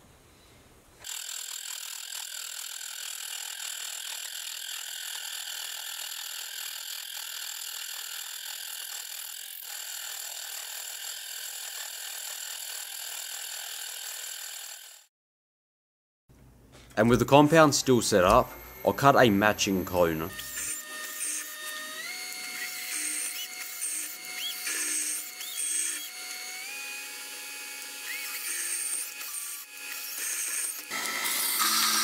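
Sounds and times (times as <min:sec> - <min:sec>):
saw cutting metal whine: 0:18.1 - 0:32.0.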